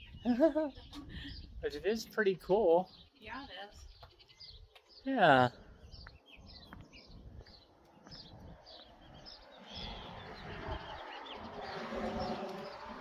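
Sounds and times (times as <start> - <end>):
small bird chirping: 2.8 - 5.1, 5.8 - 13.0.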